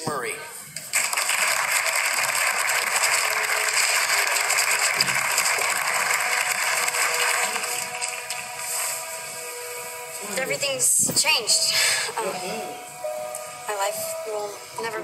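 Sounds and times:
audience applauding: 0:00.9 - 0:09.2.

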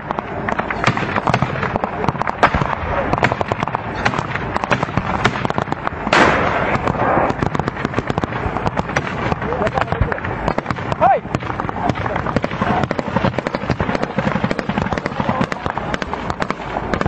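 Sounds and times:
heavy gunfire: 0:00.0 - 0:17.0.

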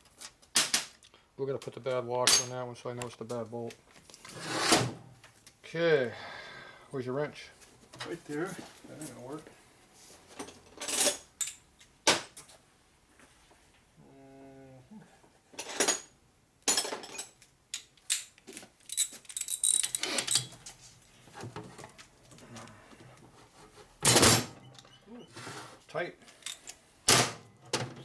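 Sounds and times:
hand tools clinking on metal: 0:02.2 - 0:02.6, 0:16.7 - 0:20.8.

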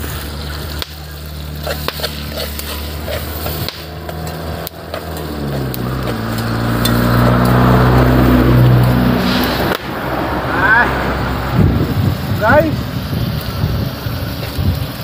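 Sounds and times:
truck engine running: 0:00.0 - 0:15.0
light metal clinks: 0:03.4 - 0:07.6.

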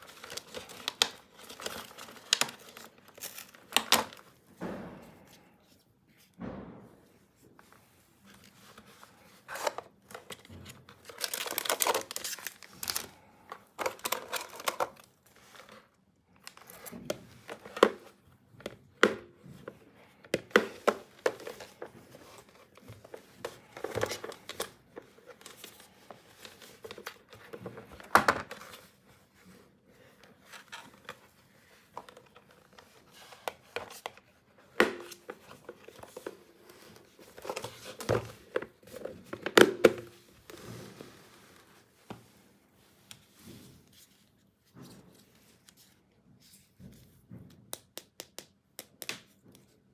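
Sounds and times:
plastic packaging crinkling: 0:09.5 - 0:15.6.

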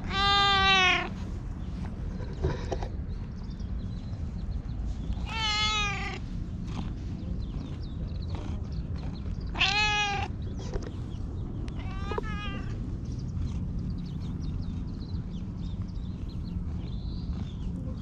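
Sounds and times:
cat meowing: 0:00.0 - 0:01.2, 0:05.2 - 0:06.2, 0:09.5 - 0:10.3, 0:11.8 - 0:12.8
steady low rumble: 0:00.0 - 0:18.0.

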